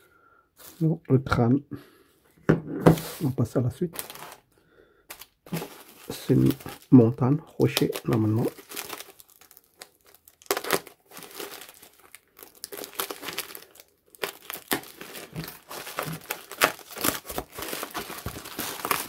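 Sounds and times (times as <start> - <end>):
packing wrap crinkling and tearing: 3.9 - 4.5, 5.1 - 19.0.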